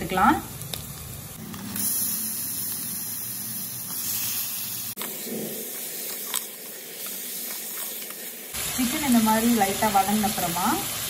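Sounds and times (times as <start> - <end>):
chicken sizzling in hot oil: 0.0 - 11.0.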